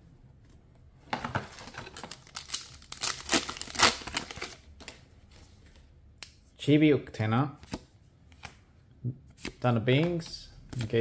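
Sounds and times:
foil wrapper crinkling and tearing: 0:01.8 - 0:04.6.

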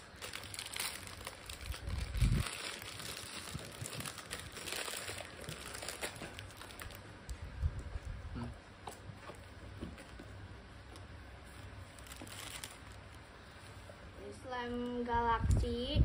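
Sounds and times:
plastic wrapping crinkling: 0:00.0 - 0:08.2, 0:11.4 - 0:13.7.

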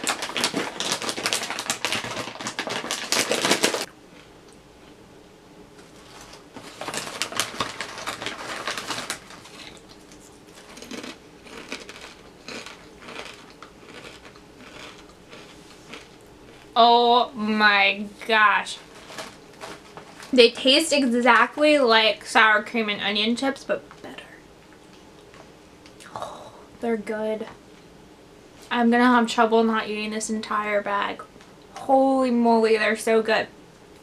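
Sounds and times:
chips crunching: 0:00.0 - 0:04.3, 0:06.0 - 0:16.8, 0:18.8 - 0:20.4
crinkly chip bag crackling: 0:00.0 - 0:04.3, 0:05.9 - 0:16.8, 0:18.2 - 0:20.7.

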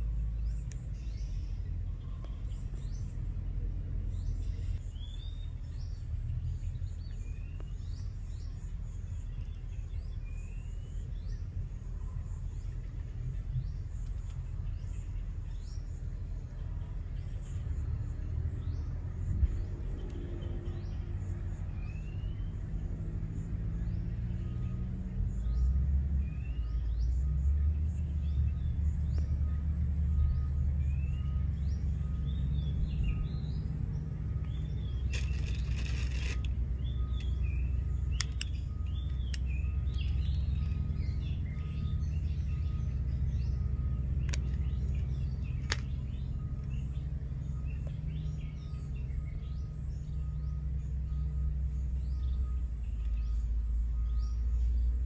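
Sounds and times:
small birds chirping: 0:00.0 - 0:55.0
sharp clicks: 0:38.1 - 0:40.9.

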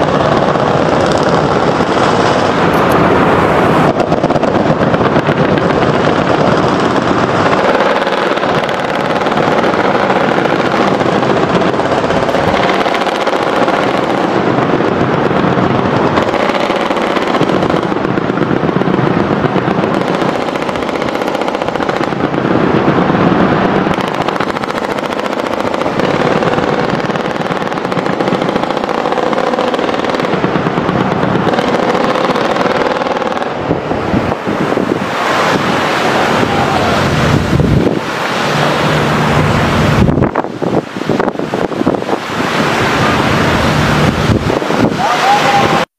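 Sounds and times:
rapid automatic gunfire: 0:00.0 - 0:02.6, 0:03.9 - 0:33.6.

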